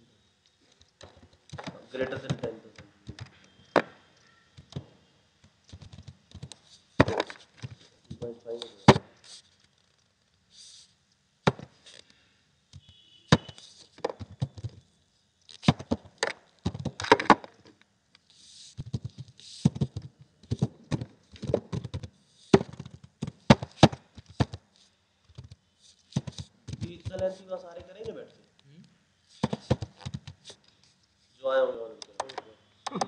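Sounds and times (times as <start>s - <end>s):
computer keyboard typing: 5.7s - 6.6s, 26.2s - 28.2s.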